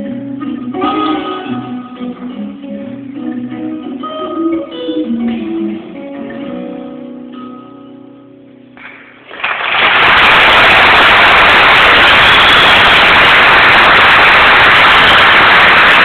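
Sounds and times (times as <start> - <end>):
audience applause: 8.9 - 16.0.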